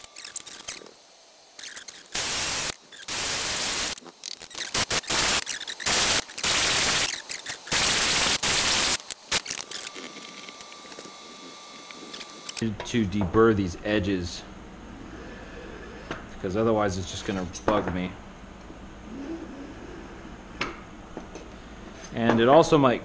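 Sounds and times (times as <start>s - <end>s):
drill grinding aluminium hiss: 0.0s - 12.6s.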